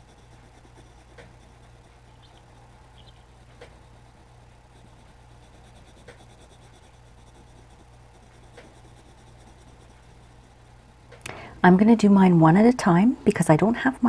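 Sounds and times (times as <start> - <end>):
pencil scratching on paper: 0.0 - 10.8
steady low hum: 0.0 - 14.0.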